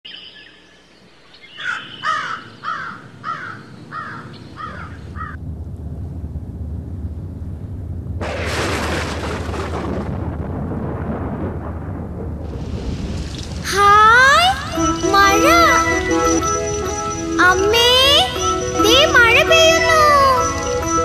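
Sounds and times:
bird calling: 0:00.1 - 0:05.4
low rumble of thunder: 0:03.0 - 0:14.8
steady hiss of rain: 0:05.3 - 0:14.1.

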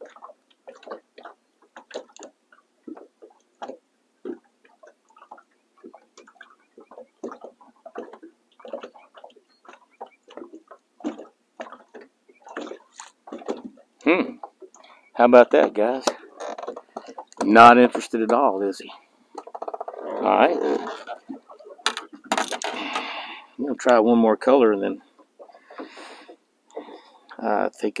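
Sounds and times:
waves lapping against boat hull: 0:00.0 - 0:28.0.

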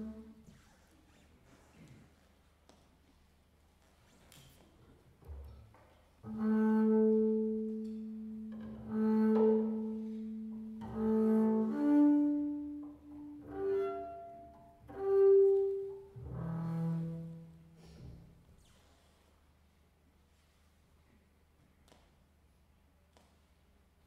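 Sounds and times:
bowed double bass notes: 0:00.0 - 0:00.4, 0:06.2 - 0:18.4.

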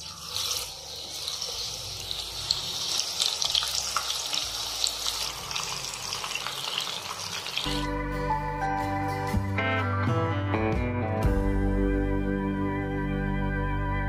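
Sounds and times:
chicken deep-frying in oil: 0:00.0 - 0:07.8
background music: 0:07.7 - 0:14.0.

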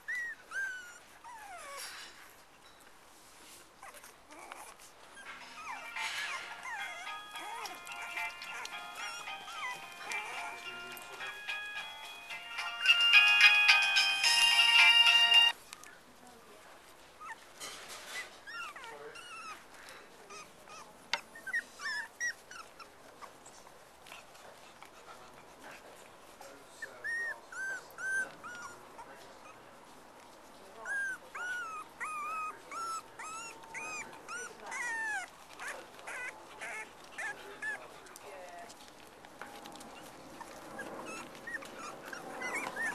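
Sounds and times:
puppies squeaking and whimpering: 0:00.0 - 0:02.5, 0:03.7 - 0:15.6, 0:17.2 - 0:25.7, 0:26.4 - 0:29.7, 0:30.6 - 0:42.9.

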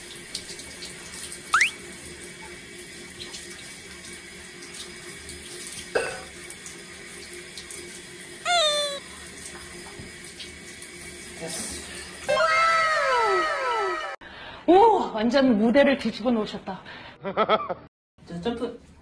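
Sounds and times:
rising squeak: 0:01.5 - 0:01.8, 0:08.5 - 0:09.0
short pitched sound: 0:01.5 - 0:01.8, 0:08.5 - 0:09.0.

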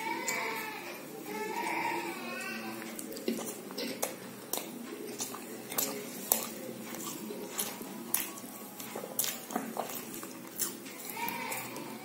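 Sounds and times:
chewing with wet lip smacks: 0:02.8 - 0:12.0.

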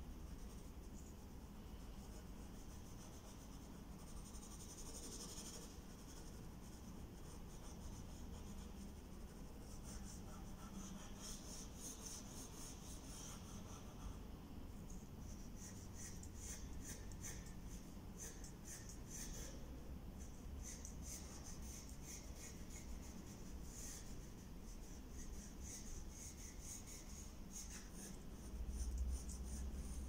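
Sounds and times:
pencil scratching on paper: 0:02.0 - 0:14.2, 0:20.6 - 0:30.0.

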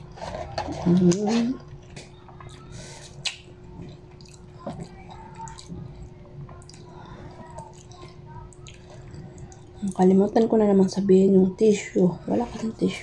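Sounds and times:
person chewing: 0:01.3 - 0:10.0.

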